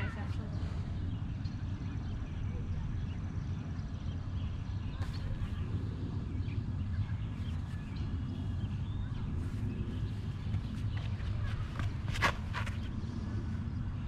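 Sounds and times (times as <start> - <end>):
birds chirping: 0.0 - 14.0
wind rumble on microphone: 0.0 - 14.0.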